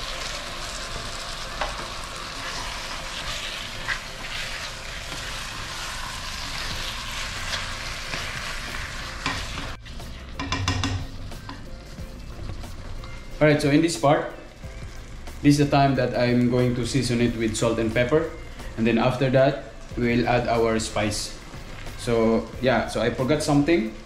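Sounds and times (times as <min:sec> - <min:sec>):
meat sizzling in a pot: 0:00.0 - 0:24.0
utensil knocking against pot: 0:10.4 - 0:11.1.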